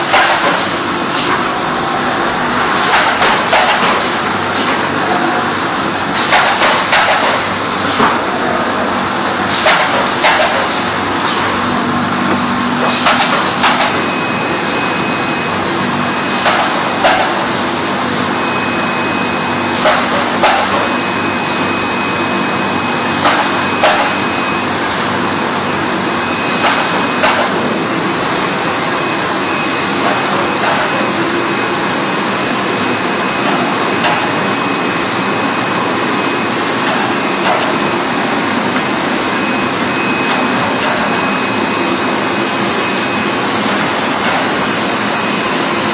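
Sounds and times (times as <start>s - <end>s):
sharp machine knocks: 0.0s - 1.3s, 6.2s - 8.2s, 9.5s - 11.6s, 12.8s - 14.1s
machine whir: 0.0s - 45.9s.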